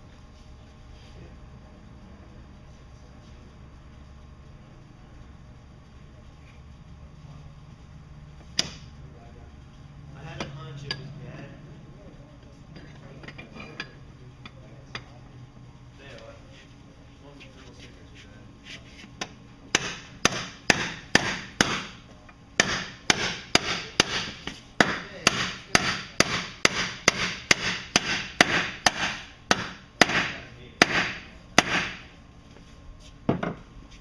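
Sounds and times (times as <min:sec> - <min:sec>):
hammer striking bearing driver: 0:08.5 - 0:08.9, 0:19.2 - 0:22.0, 0:22.6 - 0:32.1.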